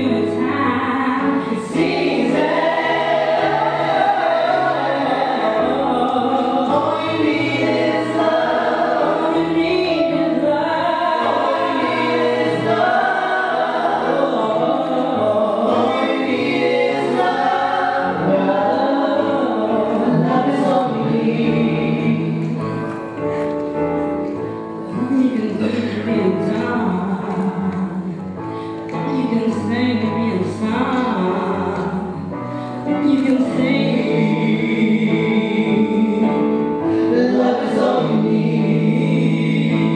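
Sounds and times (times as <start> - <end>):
choir singing: 0.0 - 22.6, 33.0 - 39.9.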